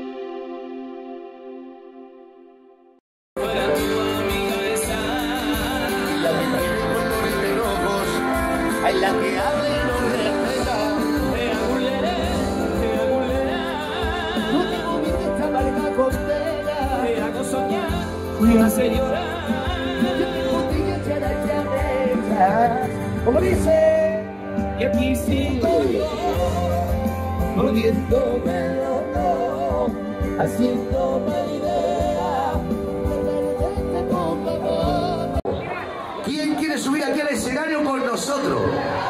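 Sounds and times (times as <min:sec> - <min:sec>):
singer with vibrato: 0:03.4 - 0:35.7
live pop band playing: 0:03.4 - 0:39.0.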